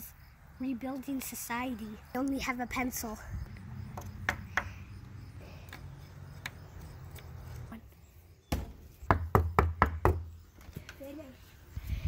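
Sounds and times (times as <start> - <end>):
knocks on wooden boards: 3.9 - 4.8, 8.5 - 10.3.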